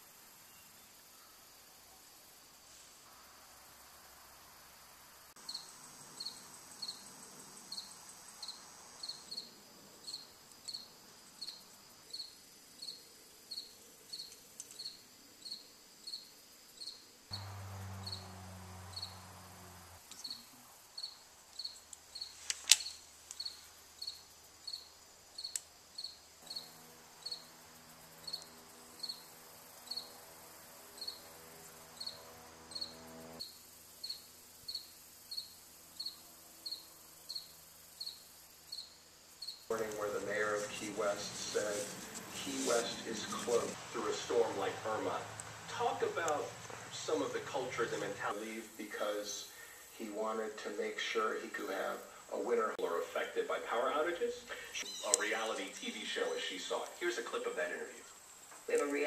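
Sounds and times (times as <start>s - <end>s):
cricket chirping: 0.0s - 59.0s
low electrical hum: 17.1s - 59.0s.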